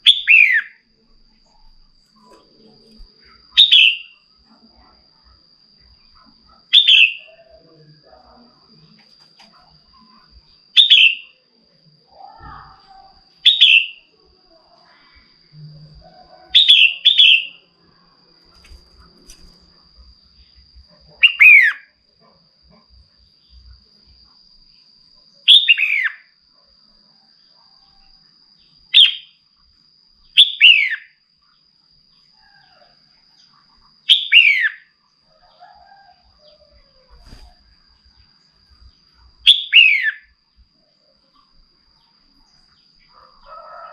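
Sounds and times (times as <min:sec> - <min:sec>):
faint high whine: 0:00.0 - 0:43.9
bird chirping: 0:03.2 - 0:04.2, 0:06.7 - 0:07.6, 0:10.8 - 0:11.3, 0:13.4 - 0:14.1, 0:16.5 - 0:17.6, 0:21.2 - 0:21.8, 0:25.5 - 0:26.2, 0:28.6 - 0:29.4, 0:30.3 - 0:31.1, 0:34.1 - 0:34.9, 0:38.8 - 0:40.4.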